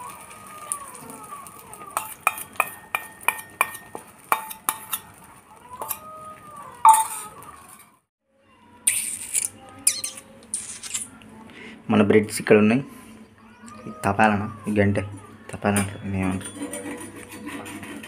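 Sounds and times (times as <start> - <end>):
spoon scraping metal bowl: 2.0 - 5.1, 6.8 - 7.9, 8.9 - 11.1, 15.8 - 18.0.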